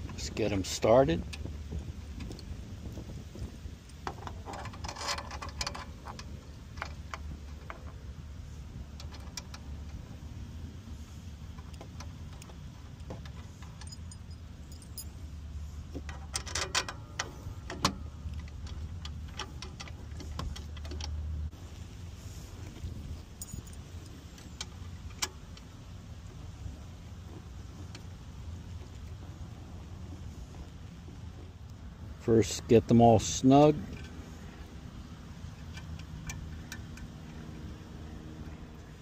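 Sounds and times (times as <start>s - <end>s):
metal screws clinking on metal: 3.9s - 7.9s, 13.3s - 15.3s, 16.1s - 17.9s, 23.4s - 24.6s.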